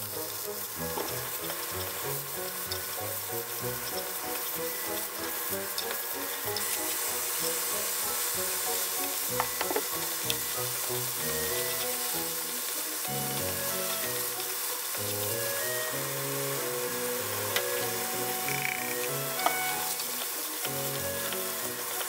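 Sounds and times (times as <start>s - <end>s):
background music: 0.0s - 22.0s
meat sizzling in a frying pan: 0.0s - 22.0s.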